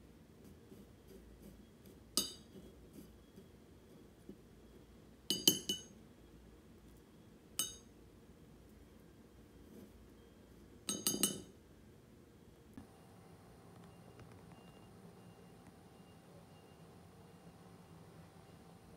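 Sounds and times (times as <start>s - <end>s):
chopsticks clinking against teacup: 2.2s - 2.5s, 5.3s - 5.9s, 7.6s - 7.9s, 10.9s - 11.5s.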